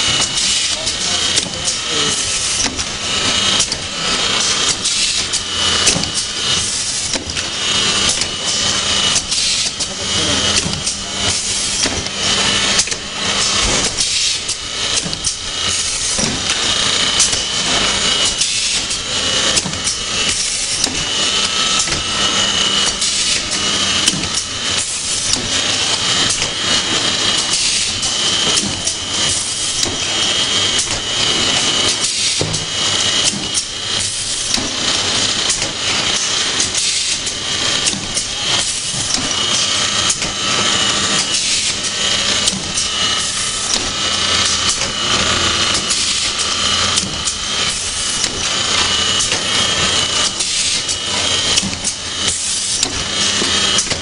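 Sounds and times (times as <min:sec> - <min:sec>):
steady high whine: 0:00.0 - 0:32.0
machinery clattering and clicking: 0:00.0 - 0:54.0.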